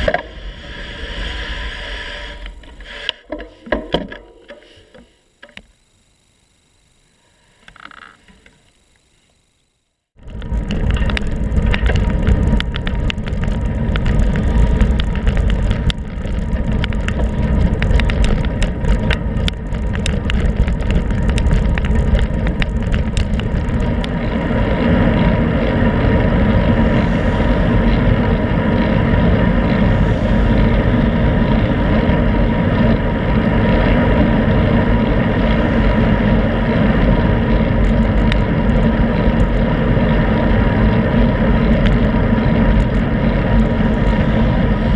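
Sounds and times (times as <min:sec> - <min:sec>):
wind rush: 0:00.0 - 0:03.1, 0:10.2 - 0:44.9
road rumble: 0:00.0 - 0:05.6, 0:10.2 - 0:44.9
small clicks and rattles: 0:07.6 - 0:44.9.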